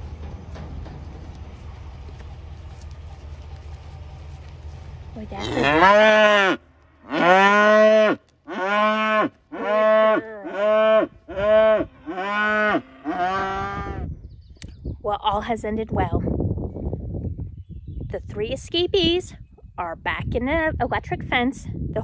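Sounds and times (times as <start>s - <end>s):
cow mooing: 5.3s - 14.1s.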